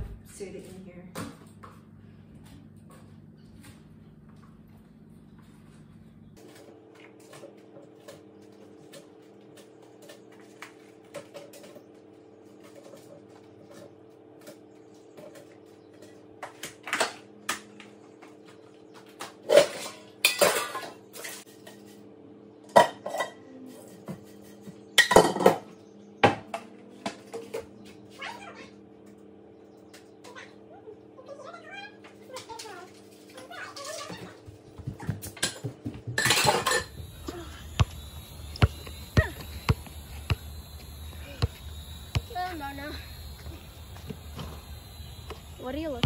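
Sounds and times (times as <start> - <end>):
steady low hum: 0.0 - 7.4, 36.2 - 46.0
dishes and cutlery clattering: 19.5 - 21.5, 22.8 - 23.4, 25.0 - 25.7, 35.4 - 36.9.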